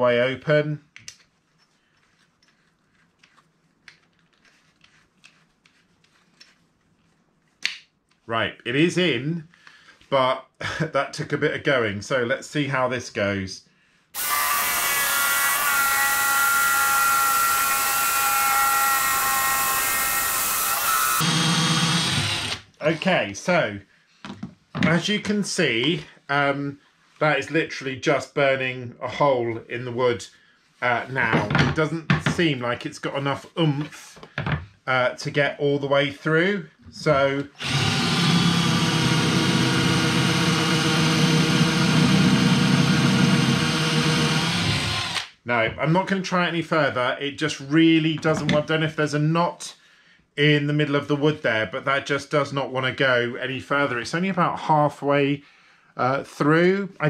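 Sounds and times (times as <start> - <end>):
drill motor whining: 14.2 - 22.7, 37.6 - 45.3.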